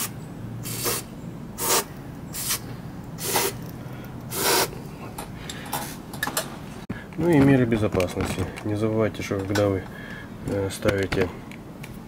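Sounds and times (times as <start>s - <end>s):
aerosol spray hissing bursts: 0.0s - 2.6s, 3.2s - 3.6s, 4.3s - 4.7s.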